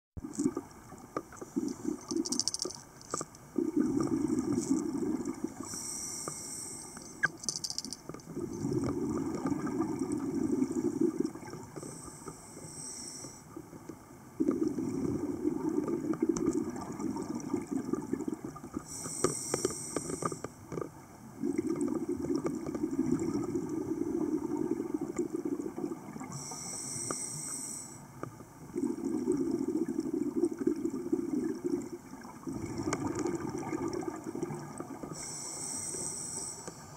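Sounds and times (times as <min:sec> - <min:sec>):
exhaust bubbles rumbling: 0:03.5 - 0:05.6, 0:28.7 - 0:35.1
regulator inhale hiss: 0:05.6 - 0:07.1, 0:11.8 - 0:13.5, 0:18.8 - 0:20.5, 0:26.3 - 0:28.1, 0:35.1 - 0:36.9.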